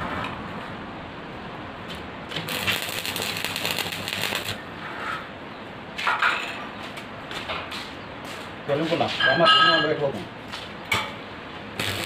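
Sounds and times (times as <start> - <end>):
welding arc crackling: 2.3 - 4.6, 11.7 - 12.0.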